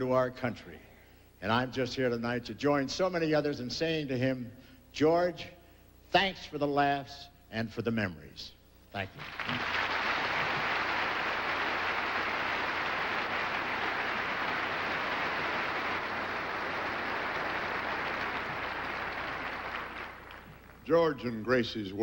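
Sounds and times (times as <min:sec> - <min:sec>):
large audience applauding: 0:09.2 - 0:20.8.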